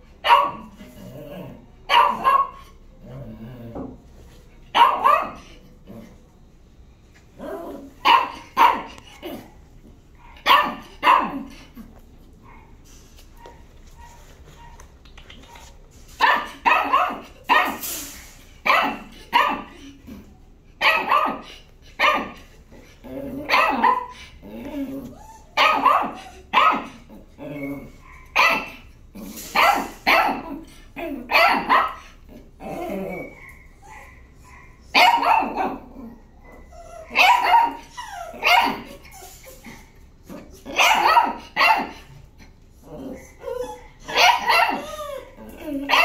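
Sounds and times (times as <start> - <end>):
dog barking: 0.2 - 0.7, 1.9 - 2.8, 4.7 - 5.5, 8.0 - 9.0, 10.2 - 11.5, 15.5 - 17.8, 18.6 - 19.7, 20.8 - 22.4, 23.5 - 24.2, 25.6 - 27.0, 28.0 - 28.8, 29.6 - 30.6, 31.3 - 32.2, 33.3 - 35.9, 36.6 - 39.0, 40.7 - 42.1, 44.1 - 44.9.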